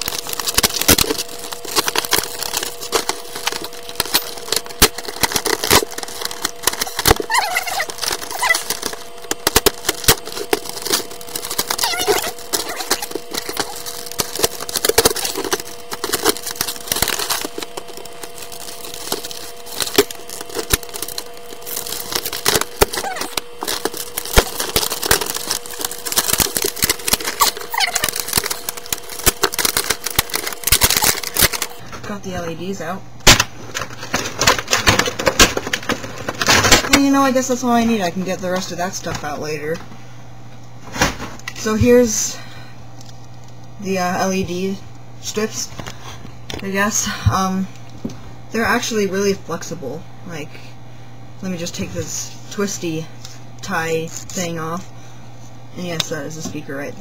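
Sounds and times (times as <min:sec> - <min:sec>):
plastic packaging crackling: 0:00.0 - 0:32.2, 0:33.3 - 0:39.4
steady hum: 0:00.0 - 0:57.0.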